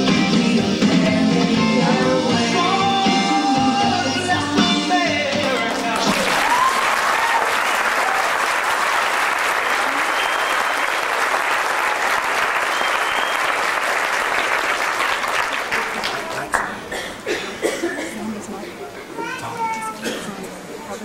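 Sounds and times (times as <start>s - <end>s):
music: 0.0s - 6.4s
audience applauding and cheering: 5.9s - 16.8s
shouts and whistles: 9.8s - 11.1s, 12.6s - 13.6s.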